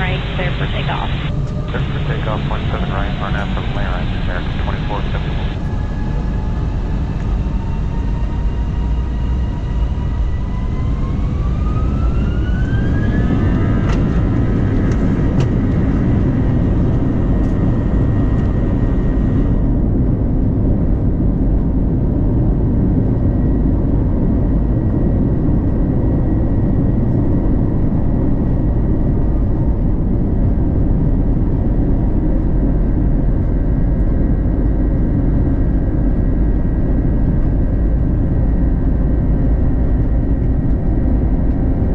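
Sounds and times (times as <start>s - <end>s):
heavy low rumble: 0.0s - 41.9s
jet engines whining: 0.0s - 41.9s.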